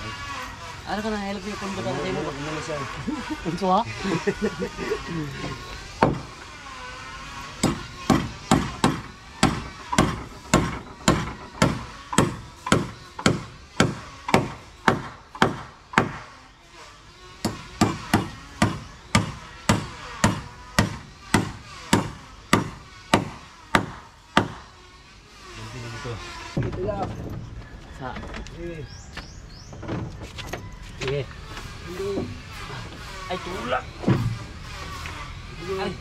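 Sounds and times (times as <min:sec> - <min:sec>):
hammering on timber: 0:06.0 - 0:06.3, 0:07.6 - 0:16.3, 0:17.4 - 0:24.7.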